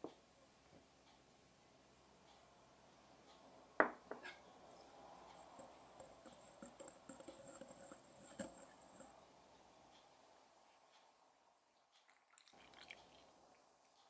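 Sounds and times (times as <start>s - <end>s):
utensil stirring flour in glass bowl: 5.3s - 9.2s.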